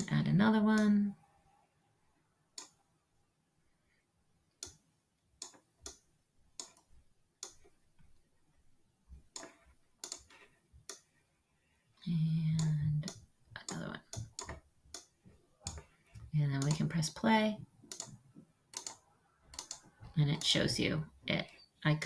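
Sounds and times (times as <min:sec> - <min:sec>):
computer mouse clicking: 0:02.5 - 0:02.8, 0:04.6 - 0:04.8, 0:05.4 - 0:06.0, 0:06.6 - 0:07.7, 0:09.3 - 0:11.1, 0:12.5 - 0:17.1, 0:17.9 - 0:20.8.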